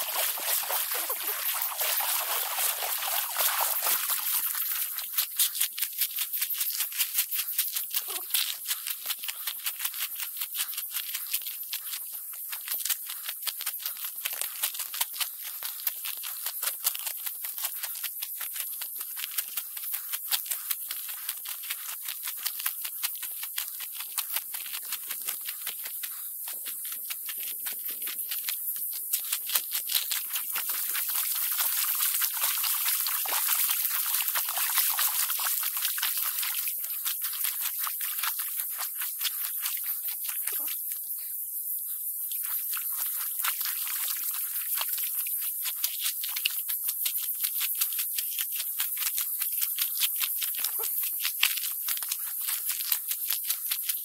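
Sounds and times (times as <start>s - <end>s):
footsteps crunching on gravel: 0.0s - 5.4s.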